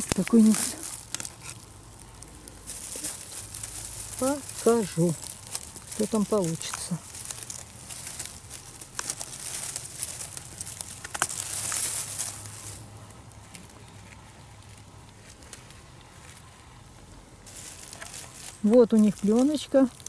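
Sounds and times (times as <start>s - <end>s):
rustling dry pine needles: 0.0s - 20.0s.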